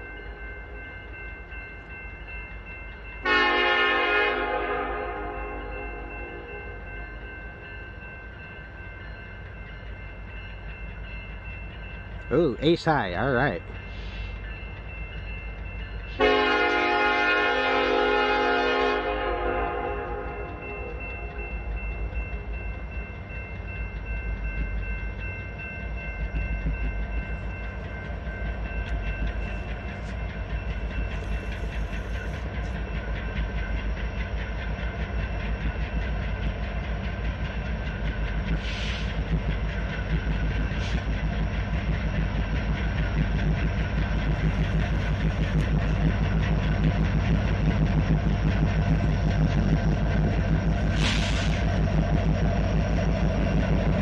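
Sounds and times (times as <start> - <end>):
locomotive engines rumbling: 0.0 - 54.0
train wheels on rails: 0.0 - 54.0.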